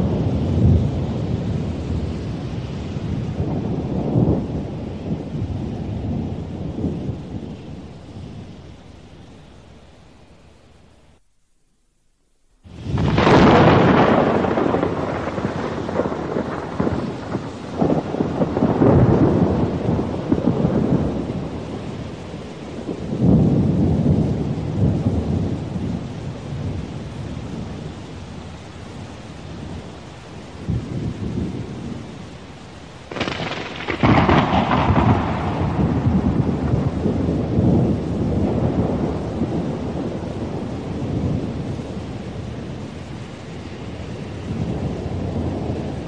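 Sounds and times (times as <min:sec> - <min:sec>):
loud thunderclap: 0:00.0 - 0:07.7, 0:12.7 - 0:27.8, 0:33.1 - 0:43.0, 0:44.3 - 0:46.0
rolling thunder: 0:00.0 - 0:08.9, 0:12.6 - 0:46.0
rain hiss: 0:00.0 - 0:46.0.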